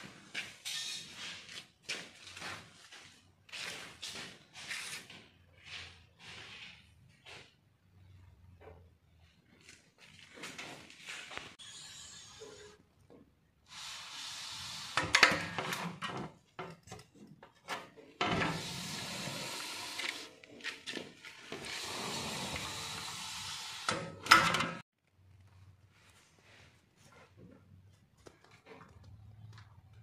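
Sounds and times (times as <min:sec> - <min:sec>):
metal window sections scraping: 0:21.4 - 0:23.2.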